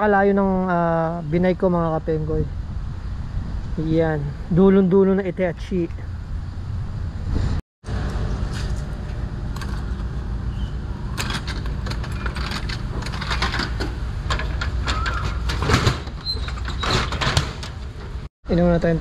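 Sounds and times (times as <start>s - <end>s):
wind buffeting microphone: 1.2s - 7.6s
handling clicks and rustles: 11.1s - 18.3s.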